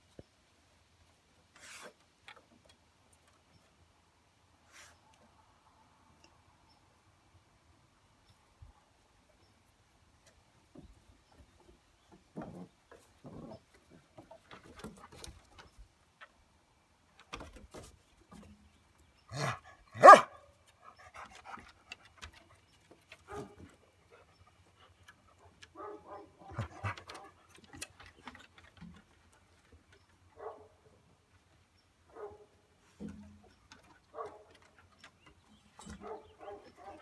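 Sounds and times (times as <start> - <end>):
dog barking: 19.4 - 20.4, 25.8 - 26.9, 30.4 - 30.7, 32.1 - 32.5, 36.0 - 37.0.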